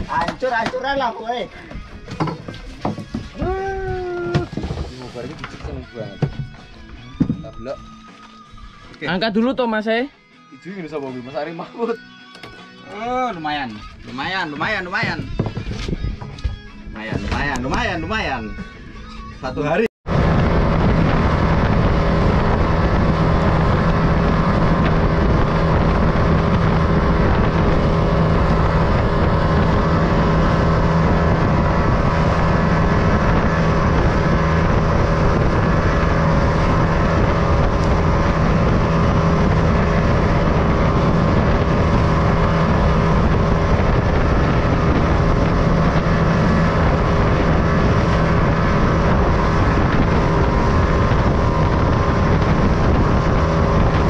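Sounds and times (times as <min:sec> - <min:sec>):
rush of wind and water: 0:00.0 - 0:01.0, 0:20.1 - 0:54.0
boat engine running: 0:20.0 - 0:54.0
wind buffeting microphone: 0:20.1 - 0:54.0.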